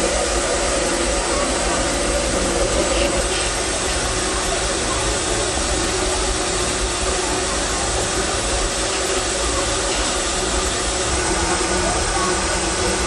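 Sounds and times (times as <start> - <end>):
steam hissing: 0.0 - 13.0.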